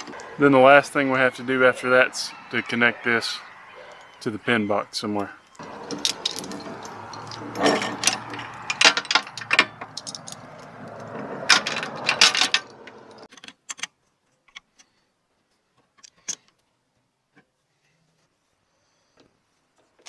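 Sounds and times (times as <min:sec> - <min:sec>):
metal chain rattling and clinking: 0:05.6 - 0:13.3.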